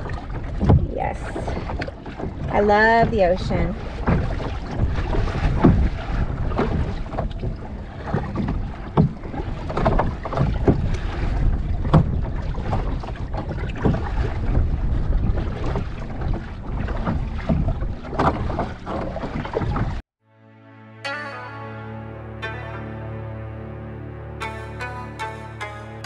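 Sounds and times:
wind buffeting microphone: 0.0 - 20.0
water splashing around kayak: 0.0 - 20.1.

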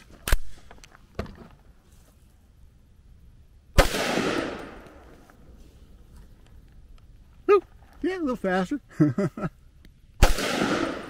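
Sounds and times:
rifle shot with echo: 3.8 - 5.1, 10.2 - 11.0.

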